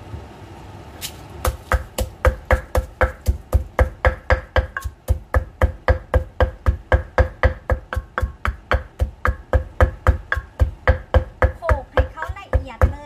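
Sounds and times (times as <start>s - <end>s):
pestle pounding in a mortar: 1.4s - 13.0s.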